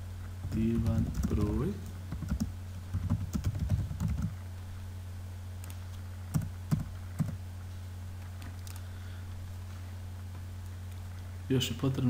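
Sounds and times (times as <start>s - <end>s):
steady low hum: 0.0s - 12.0s
keyboard keystrokes: 2.1s - 4.4s, 5.6s - 7.4s.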